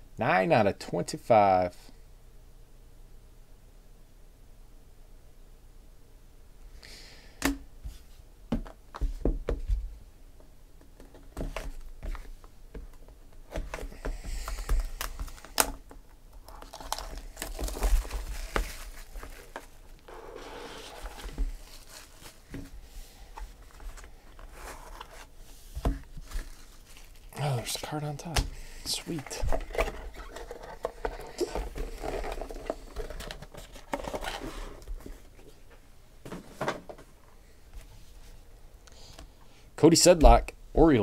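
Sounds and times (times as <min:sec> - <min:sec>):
plastic wrap tearing and crinkling: 0:16.4 - 0:22.5, 0:26.2 - 0:27.4.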